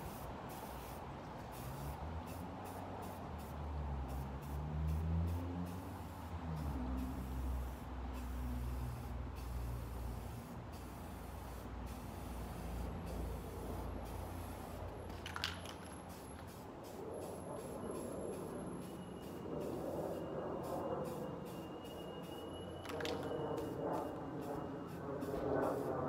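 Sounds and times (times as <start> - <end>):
spray paint can hissing: 0.0 - 26.0.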